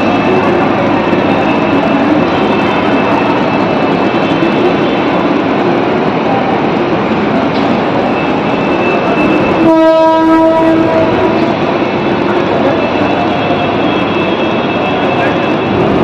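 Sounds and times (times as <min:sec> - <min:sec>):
station din: 0:07.4 - 0:16.0
train horn blast: 0:09.6 - 0:11.6.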